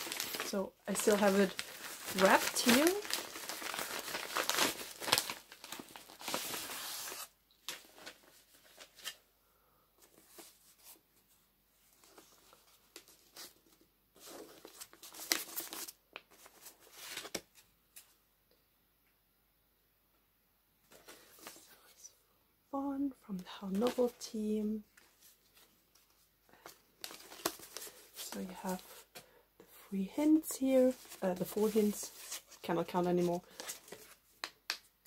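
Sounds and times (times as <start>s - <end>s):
paper and packaging rustling: 0.0s - 9.2s, 11.9s - 18.2s, 23.4s - 29.4s, 30.2s - 34.6s.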